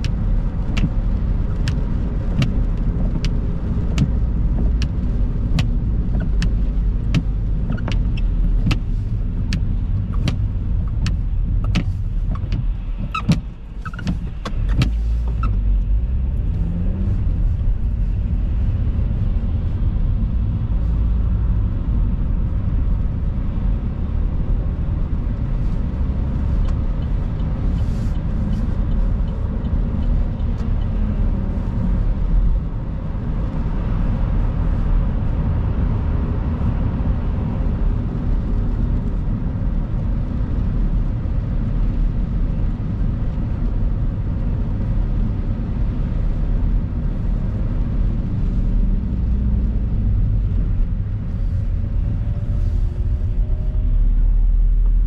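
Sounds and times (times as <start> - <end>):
turn indicator ticking: 0.0 - 15.9, 26.2 - 31.4
tyres and engine rumble: 0.0 - 55.0.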